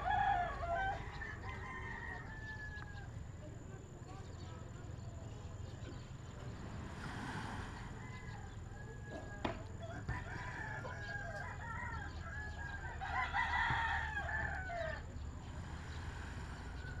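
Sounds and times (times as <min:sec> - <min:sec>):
rooster crowing: 0:00.0 - 0:03.2, 0:07.8 - 0:15.1.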